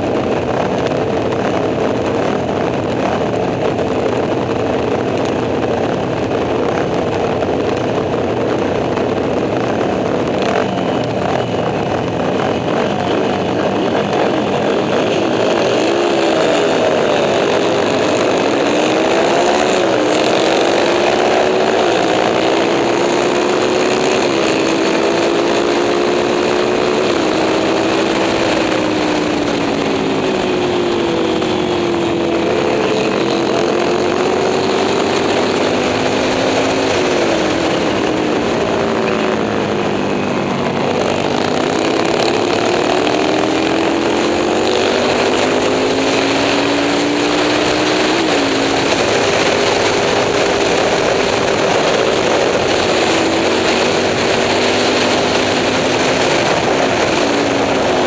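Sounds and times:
racing motorcycle engine revving: 0.0 - 58.0.

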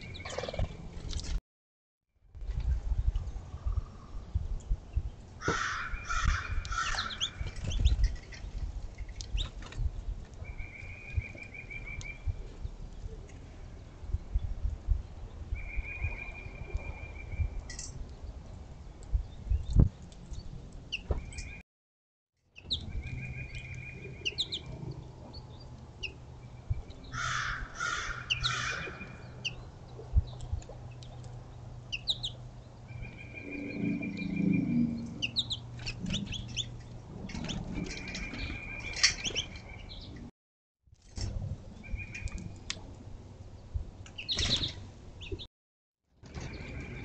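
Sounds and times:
wild birds chirping: 5.0 - 12.8, 22.6 - 40.3.

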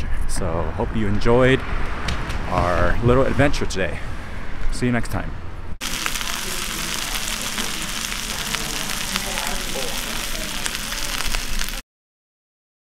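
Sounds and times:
soup sizzling and bubbling: 5.8 - 11.8.

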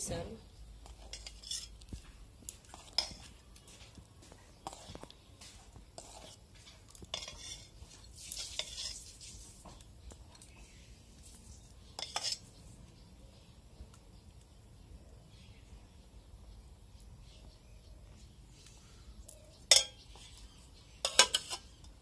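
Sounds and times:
steel ladle and dishes clinking: 7.1 - 7.7, 12.0 - 12.4, 19.7 - 20.0, 21.0 - 22.0
steel plate rattling on pot: 21.0 - 21.8.

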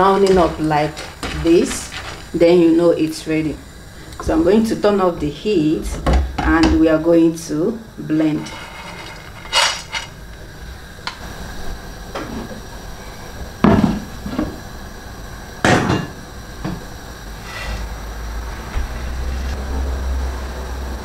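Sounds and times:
metal frying pan clattering: 8.4 - 10.2.

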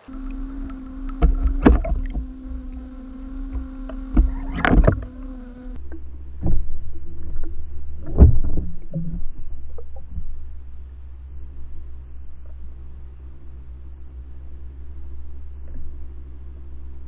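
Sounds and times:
underwater knocks and thuds: 0.0 - 10.3
underwater hum and rumble: 0.0 - 17.0.

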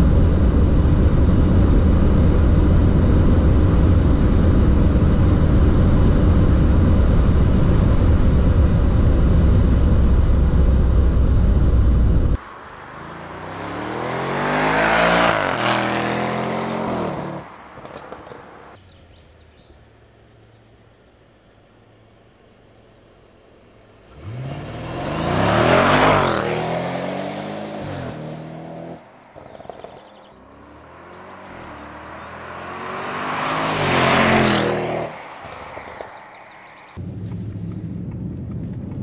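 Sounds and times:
car interior engine and wind drone: 0.0 - 39.0
car passing by: 12.4 - 18.8.

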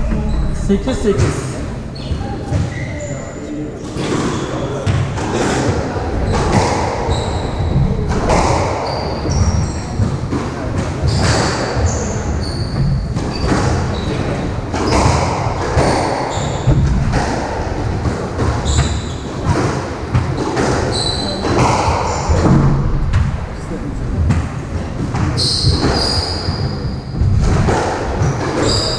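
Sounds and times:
shoes squeaking on wooden floor: 7.0 - 15.2, 25.2 - 27.2.

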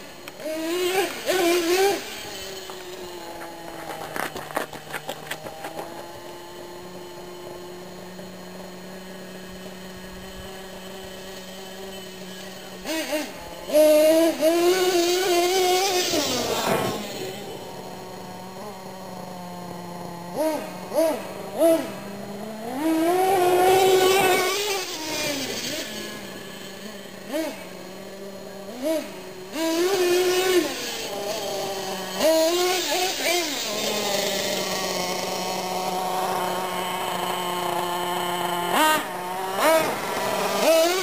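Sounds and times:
small engine revving: 0.0 - 41.0.

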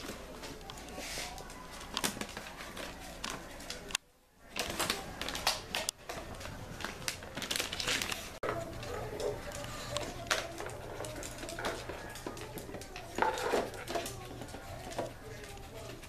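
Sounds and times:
dog rummaging through paper and plastic: 4.5 - 16.0.

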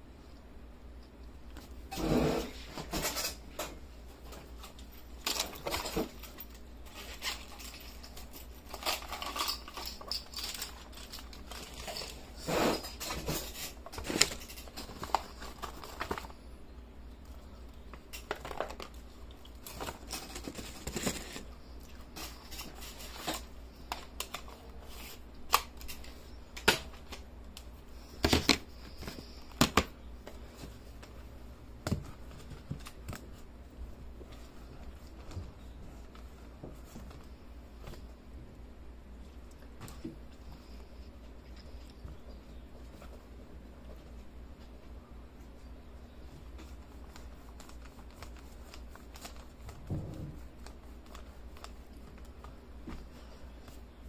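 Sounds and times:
faint low hum: 0.0 - 54.0
paper rustling and clicks: 46.6 - 53.0.

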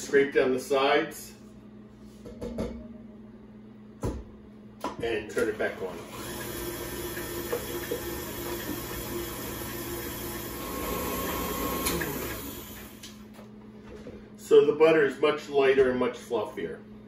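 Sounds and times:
stand mixer running: 5.6 - 13.0.

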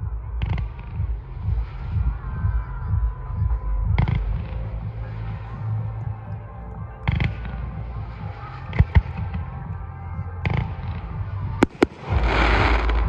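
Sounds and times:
low rumble: 0.0 - 13.0
fireworks bursting with bangs: 10.5 - 13.0.

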